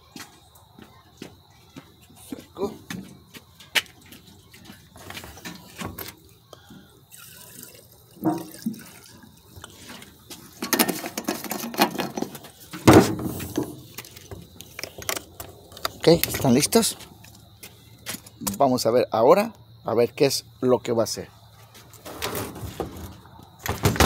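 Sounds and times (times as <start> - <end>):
fuel splashing into tank: 6.7 - 11.7.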